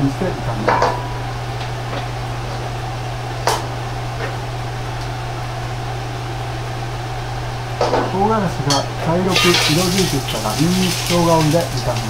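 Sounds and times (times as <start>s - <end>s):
ventilation hum: 0.0s - 12.0s
gas burner hissing: 9.2s - 12.0s.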